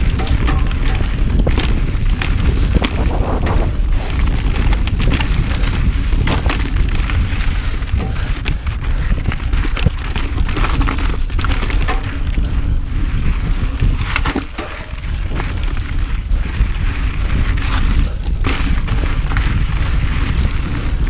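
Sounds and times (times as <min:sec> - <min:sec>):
bike clattering over rocks: 0:00.0 - 0:21.0
tyre noise on dirt: 0:00.0 - 0:21.0
wind buffeting microphone: 0:00.0 - 0:21.0.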